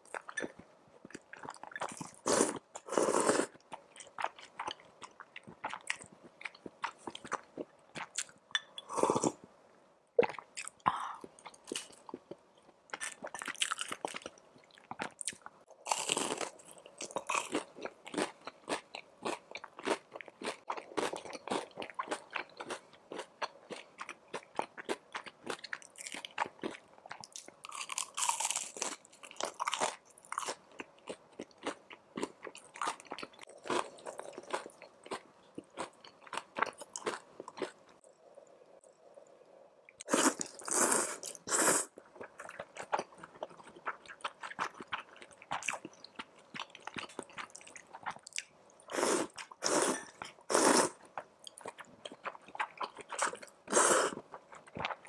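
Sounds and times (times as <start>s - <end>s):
crunching and chewing spring roll: 11.4s - 38.0s, 40.0s - 55.0s
slurp of soup: 48.9s - 51.0s, 53.7s - 54.2s.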